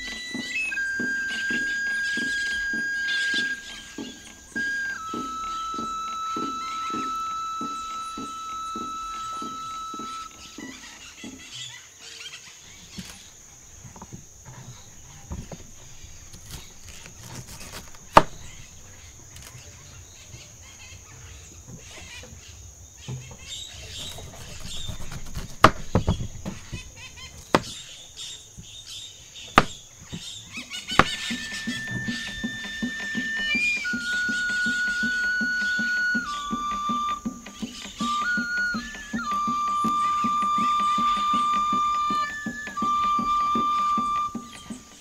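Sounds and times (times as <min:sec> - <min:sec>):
faint bird chirps: 0:00.0 - 0:45.0
insect drone: 0:00.0 - 0:45.0
sharp knocks: 0:23.1 - 0:27.9, 0:29.6 - 0:30.3, 0:30.9 - 0:45.0.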